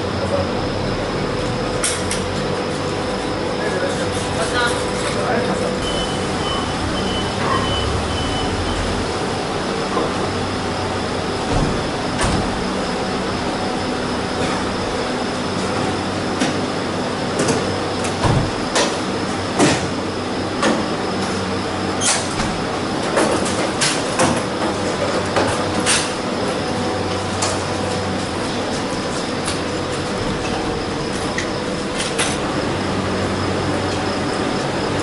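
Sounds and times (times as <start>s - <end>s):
vehicle engines idling: 0.0s - 17.2s.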